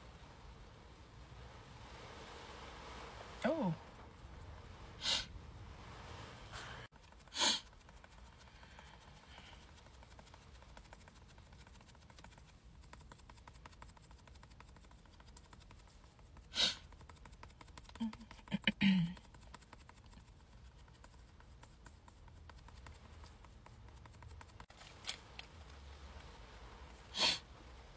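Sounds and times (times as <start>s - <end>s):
faint low rumble: 0.0s - 27.9s
sharp breaths through nose: 5.0s - 5.4s, 6.4s - 7.7s, 16.4s - 16.9s, 27.1s - 27.5s.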